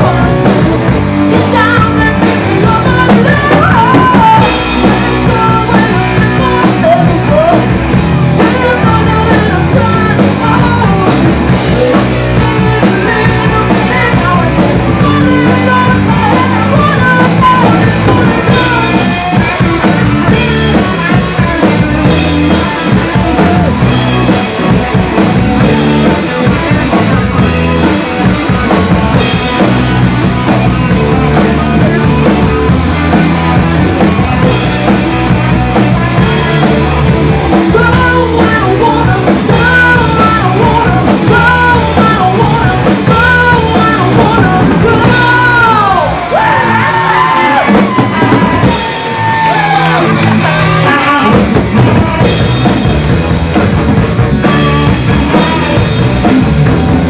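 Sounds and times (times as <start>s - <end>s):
live rock band playing: 0.0s - 57.0s
woman singing into microphone: 1.3s - 7.8s, 8.4s - 19.4s, 37.6s - 46.3s.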